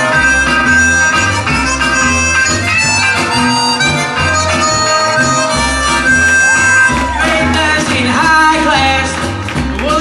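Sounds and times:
blues harmonica solo: 0.0 - 7.8
backing music with bass line: 0.0 - 10.0.

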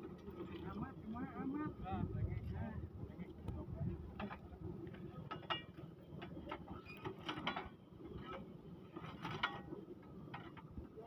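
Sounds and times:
metallic clanks and rattles: 5.2 - 10.7.

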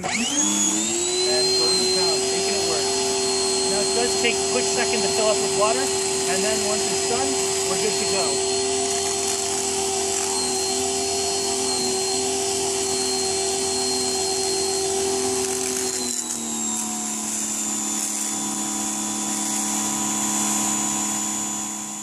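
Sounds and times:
pressure washer motor whining: 0.0 - 22.0
water jet hissing on concrete: 3.7 - 10.6.

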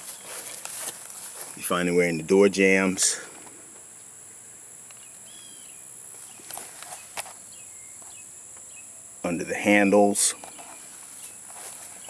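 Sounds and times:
faint bird chirps: 4.9 - 9.0.

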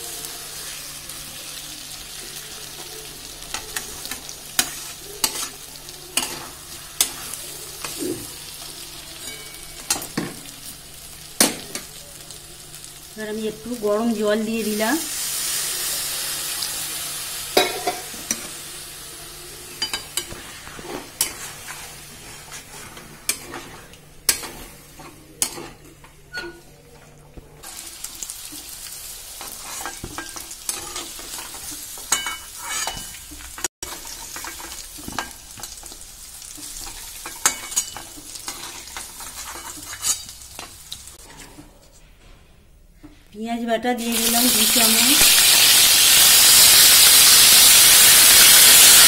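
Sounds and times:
food sizzling in hot oil: 0.0 - 26.5, 27.6 - 41.2, 44.0 - 49.0
metal spatula scraping pan: 19.8 - 26.7, 29.4 - 33.2, 36.8 - 42.0.

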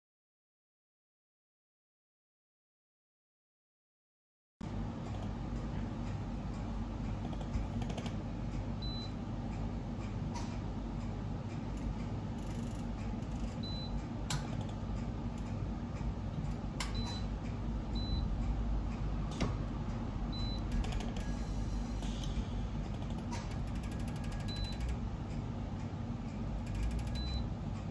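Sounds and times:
low machine hum: 4.6 - 27.9.

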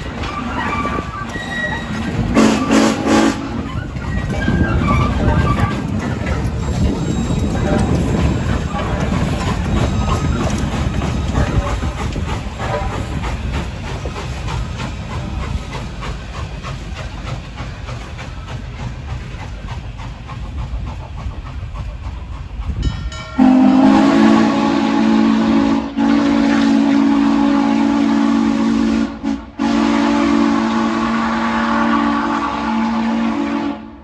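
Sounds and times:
steam locomotive rumbling: 0.0 - 34.0
train chime whistle blasts: 23.1 - 33.9.

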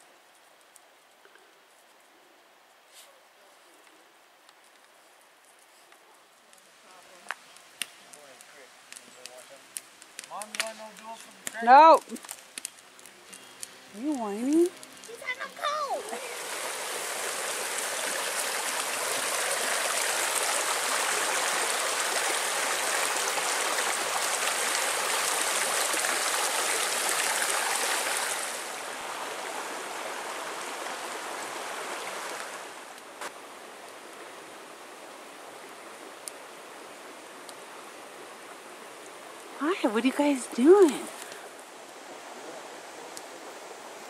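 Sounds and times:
creek rushing over rocks: 13.9 - 44.0.

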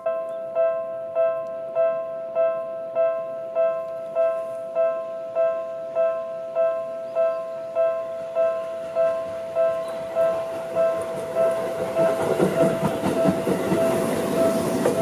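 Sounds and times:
level crossing warning bell: 0.0 - 15.0.

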